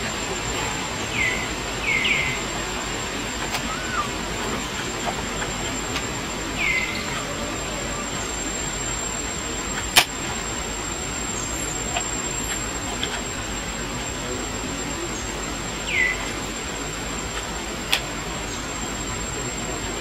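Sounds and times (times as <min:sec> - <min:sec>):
steady high whine: 0:00.0 - 0:20.0.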